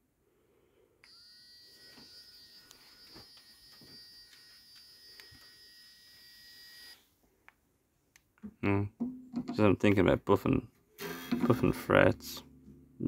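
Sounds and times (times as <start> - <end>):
rotary tool whine: 1.0 - 7.1, 11.0 - 11.6.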